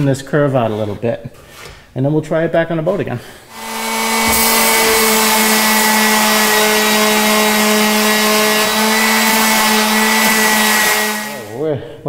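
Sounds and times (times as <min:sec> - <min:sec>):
orbital sander sanding wood: 0:03.5 - 0:11.6.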